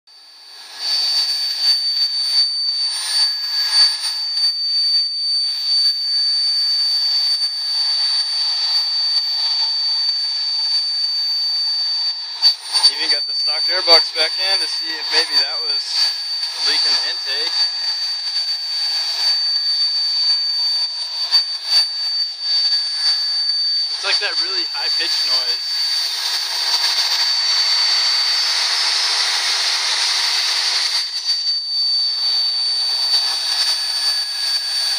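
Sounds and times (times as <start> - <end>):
high-pitched whistle: 0.6 - 34.9.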